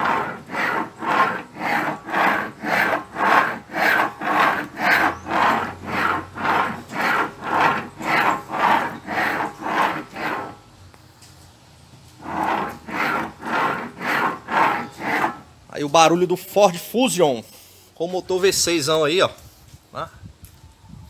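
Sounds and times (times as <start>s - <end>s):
steering rack rasping grind: 0.0s - 10.6s, 12.1s - 15.5s.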